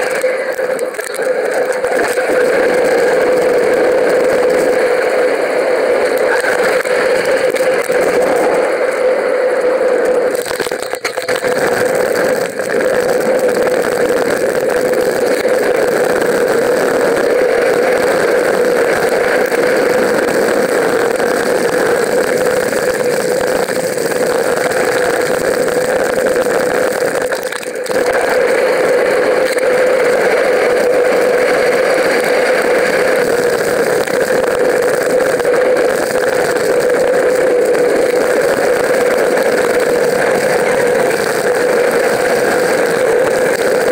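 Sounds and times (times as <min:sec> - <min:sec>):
wind: 0:00.0 - 0:43.9.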